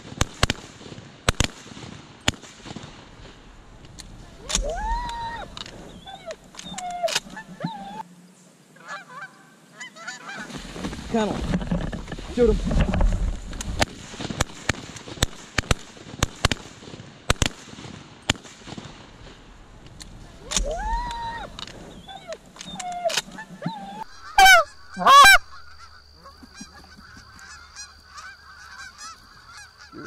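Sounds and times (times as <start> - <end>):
geese honking: 4.2 - 8.1, 8.8 - 11.2, 20.2 - 30.0.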